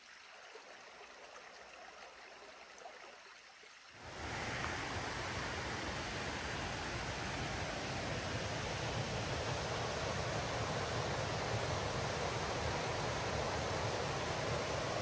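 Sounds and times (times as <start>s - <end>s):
creek rushing over rocks: 4.0s - 15.0s.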